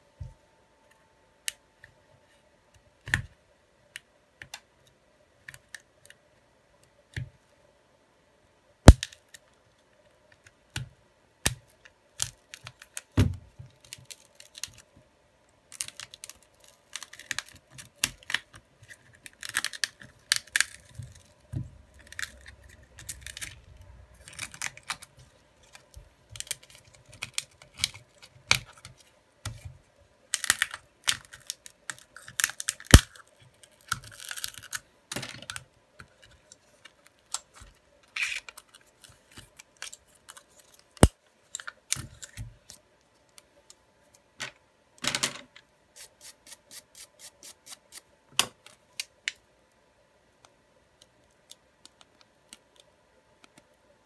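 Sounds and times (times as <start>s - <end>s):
faint steady hum: 0.0s - 54.0s
sharp plastic snaps: 8.8s - 9.4s.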